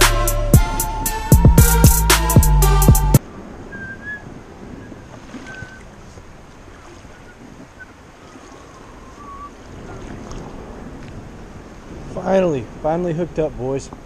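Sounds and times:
river water washing: 0.0 - 14.0
wind buffeting microphone: 3.2 - 14.0.

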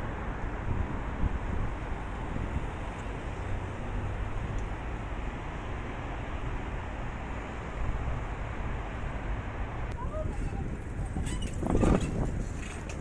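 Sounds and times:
wind buffeting microphone: 0.0 - 4.6, 9.9 - 13.0
distant road traffic: 0.0 - 13.0.

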